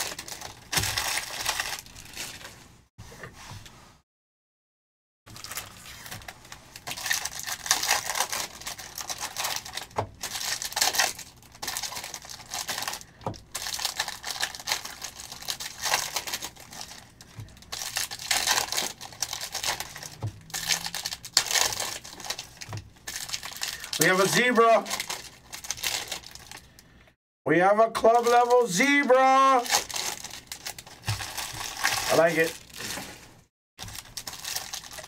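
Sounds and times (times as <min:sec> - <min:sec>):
foil wrappers crinkling and tearing: 0:00.0 - 0:02.6, 0:05.3 - 0:26.8, 0:28.1 - 0:35.0.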